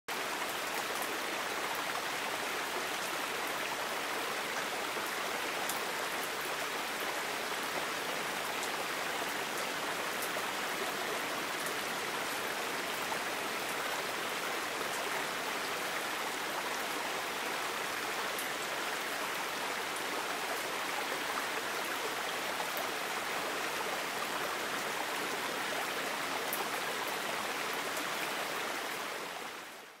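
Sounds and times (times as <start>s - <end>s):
stream running over rocks: 0.1s - 30.0s.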